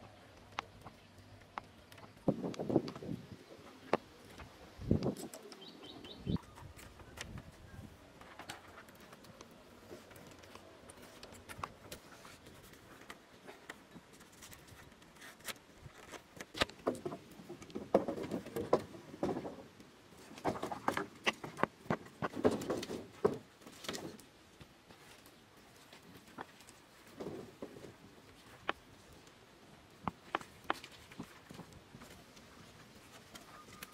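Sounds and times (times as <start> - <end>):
wooden poles knocking and clicking: 0.4 - 3.2, 16.0 - 24.3, 30.0 - 32.4.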